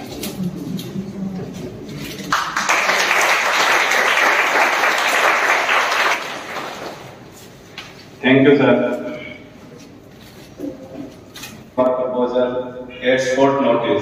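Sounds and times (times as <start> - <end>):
audience applauding: 2.2 - 7.3.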